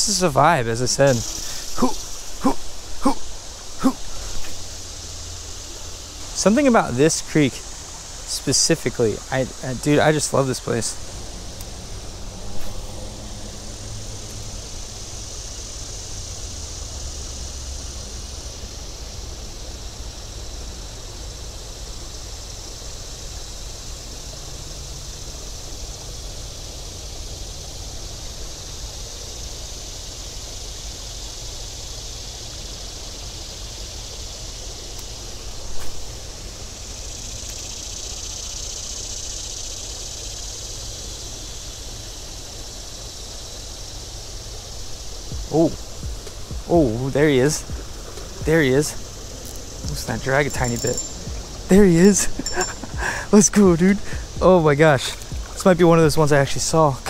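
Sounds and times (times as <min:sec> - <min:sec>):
flowing creek water: 0:44.0 - 0:57.0.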